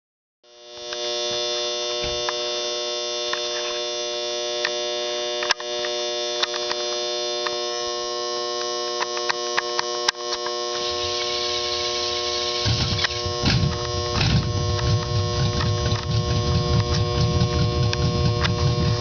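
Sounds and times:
engine running on open headers: 10.3s - 19.0s.

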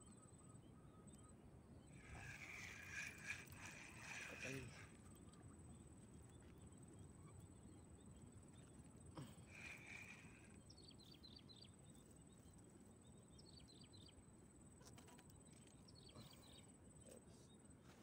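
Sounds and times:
small bird chirping: 0.0s - 14.2s.

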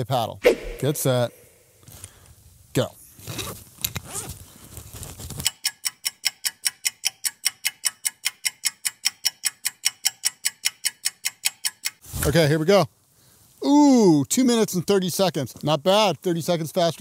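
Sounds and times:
fast clock ticking: 5.5s - 12.0s.

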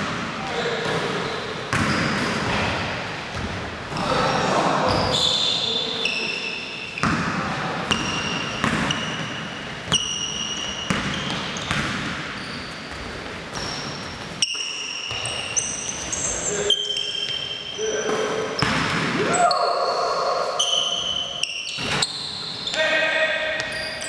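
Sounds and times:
basketball bouncing: 1.7s - 2.7s, 7.9s - 15.6s, 18.6s - 19.2s
shoes squeaking on hardwood floor: 7.9s - 20.0s, 20.6s - 23.0s, 23.6s - 24.0s.

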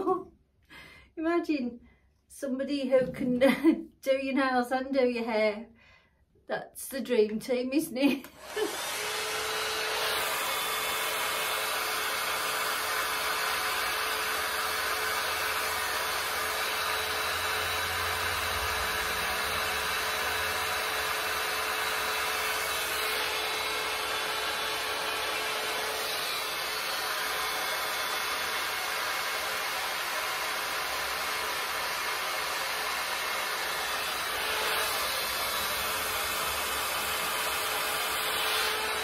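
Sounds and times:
hot air brush whirring: 8.2s - 39.0s.

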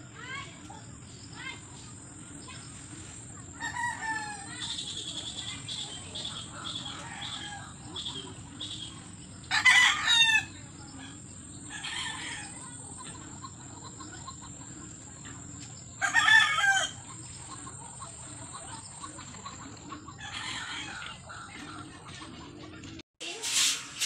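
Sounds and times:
roosters crowing: 3.5s - 4.8s, 6.6s - 8.1s, 9.4s - 12.8s, 15.9s - 17.7s, 18.8s - 21.4s.

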